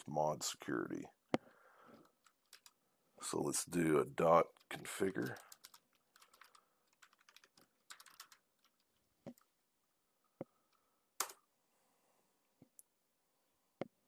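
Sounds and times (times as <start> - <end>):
faint keyboard keystrokes: 1.9 - 2.8, 4.5 - 9.5.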